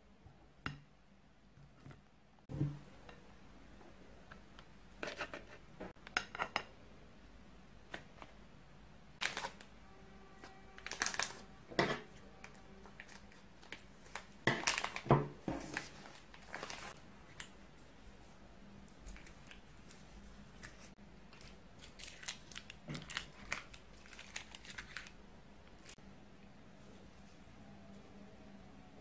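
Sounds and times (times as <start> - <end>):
plastic bag crinkling: 9.2 - 9.7, 10.8 - 11.5, 12.4 - 17.0, 19.1 - 26.0.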